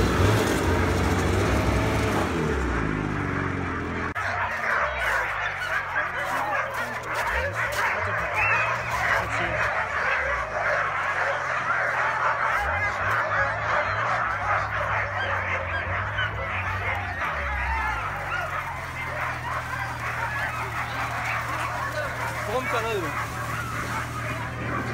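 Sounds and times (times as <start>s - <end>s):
dogs barking and yipping: 0.0s - 24.9s.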